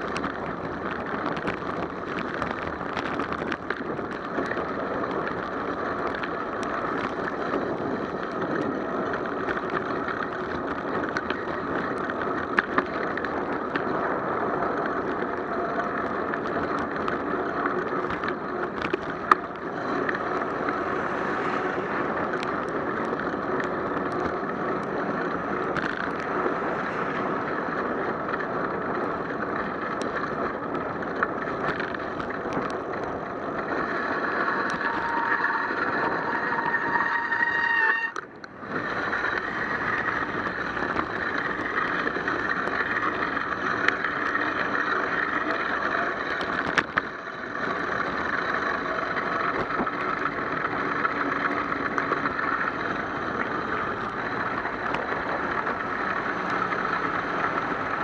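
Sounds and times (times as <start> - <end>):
bicycle tyres hissing on wet pavement: 19.7 - 28.1, 33.7 - 46.4.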